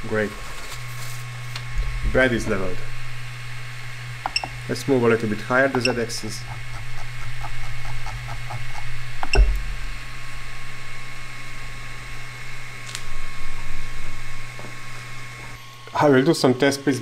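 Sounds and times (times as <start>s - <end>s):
printer fans humming: 0.0s - 17.0s
dull thump: 9.3s - 10.0s.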